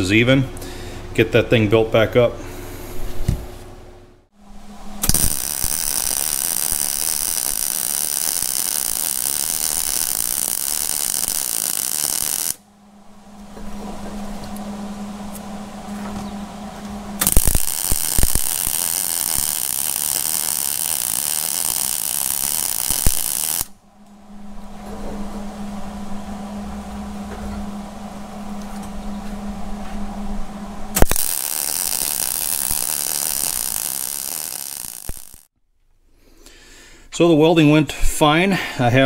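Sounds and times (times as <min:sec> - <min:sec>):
low hum: 0:02.2 - 0:35.5
welding arc crackling: 0:05.0 - 0:12.6, 0:17.2 - 0:23.8, 0:30.9 - 0:35.5
welding arc pop: 0:05.0 - 0:12.6, 0:17.2 - 0:23.7, 0:31.0 - 0:35.5.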